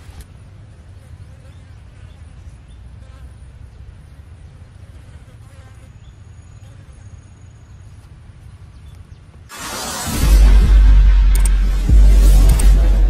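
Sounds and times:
insects buzzing and chirping: 0:00.0 - 0:09.3
loud whoosh: 0:09.5 - 0:13.0
steady low rumble: 0:09.5 - 0:13.0
thin high whine: 0:09.5 - 0:13.0.

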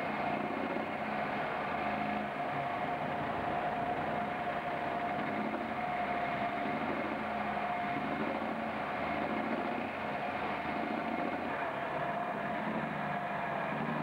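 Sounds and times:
steady whine: 0:00.0 - 0:14.0
truck engine idling: 0:00.0 - 0:14.0.

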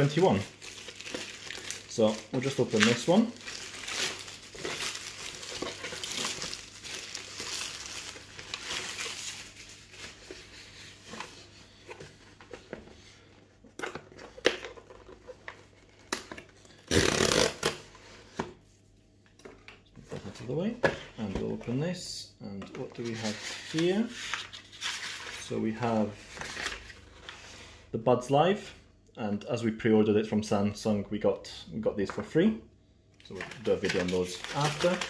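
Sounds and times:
plastic bag crinkling and tearing: 0:00.0 - 0:10.4, 0:33.3 - 0:35.0.

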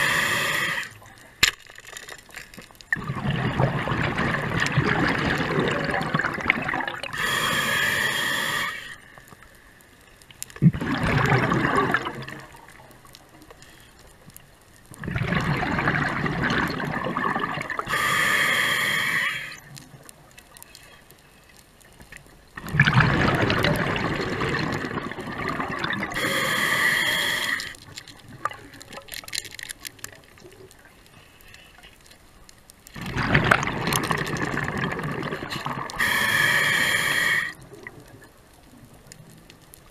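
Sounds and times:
regulator hissing inhalations: 0:00.0 - 0:01.0, 0:07.1 - 0:09.2, 0:17.9 - 0:19.6, 0:26.2 - 0:27.8, 0:36.0 - 0:37.6
diver exhaling bubbles: 0:03.0 - 0:08.8, 0:10.6 - 0:12.6, 0:15.0 - 0:19.6, 0:22.6 - 0:28.6, 0:33.0 - 0:37.6.

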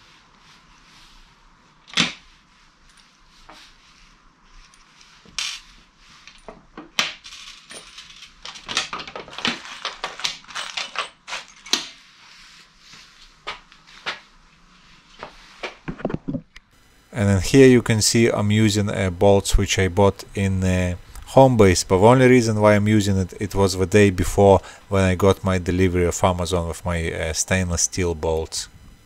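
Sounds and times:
metal bolts and washers clinking: 0:07.2 - 0:11.9.

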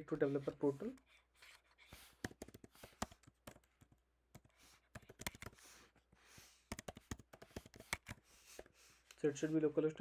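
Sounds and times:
faint keyboard typing: 0:02.0 - 0:05.7, 0:06.6 - 0:08.7.

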